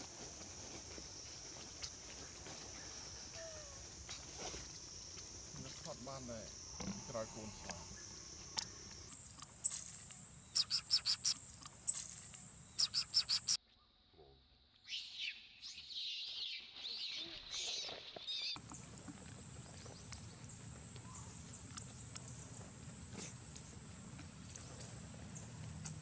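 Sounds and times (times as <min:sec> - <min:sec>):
high insect drone: 0:00.0 - 0:13.6, 0:18.6 - 0:26.0
sharp high chirps: 0:09.1 - 0:13.6
high warbling calls: 0:10.6 - 0:12.0, 0:12.8 - 0:13.6.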